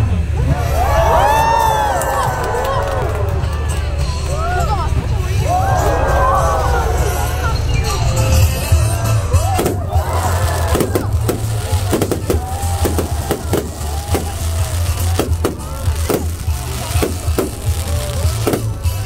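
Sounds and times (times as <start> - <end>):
music: 0.0 - 19.0
steady low rumble: 0.0 - 19.0
fireworks bangs and crackles: 8.7 - 19.0.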